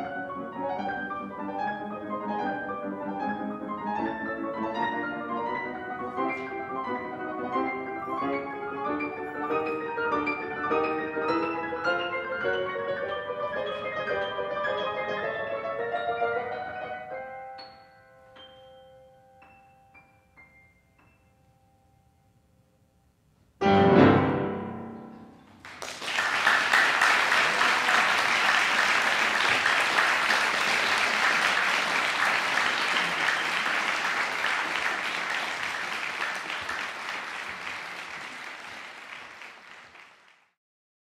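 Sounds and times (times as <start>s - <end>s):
piano notes and chord: 23.6s - 25.6s
audience applause: 25.6s - 40.6s.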